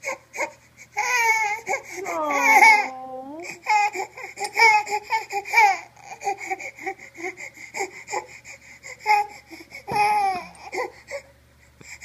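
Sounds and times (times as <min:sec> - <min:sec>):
baby crying: 0:01.0 - 0:05.0.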